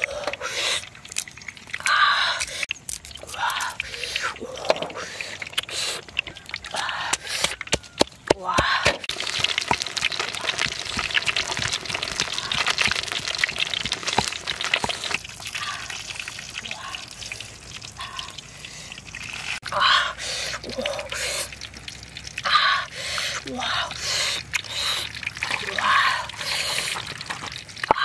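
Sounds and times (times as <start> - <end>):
water splashing and dripping: 0.0 - 28.0.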